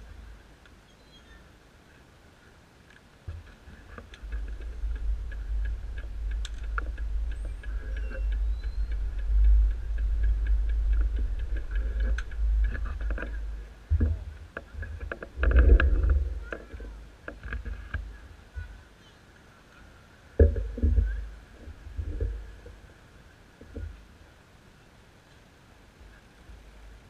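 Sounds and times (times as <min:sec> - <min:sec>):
sharp clicks: 0:02.9 - 0:18.1
rumbling and knocking on microphone: 0:03.3 - 0:18.7, 0:20.4 - 0:22.8.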